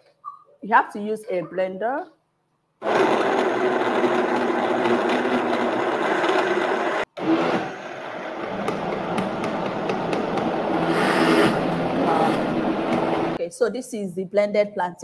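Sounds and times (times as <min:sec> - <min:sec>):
blender motor running: 0:02.8 - 0:13.4.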